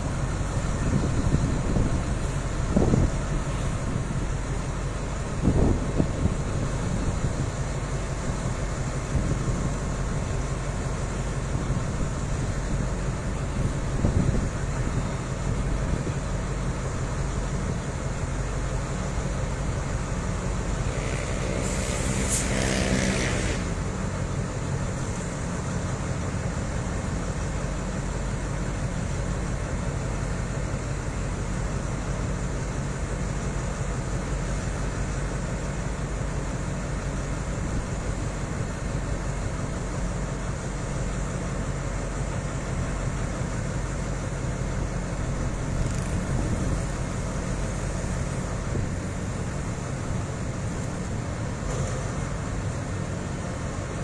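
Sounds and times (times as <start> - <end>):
diesel locomotive engine idling: 0.0 - 54.0
short tonal hiss: 20.9 - 23.8.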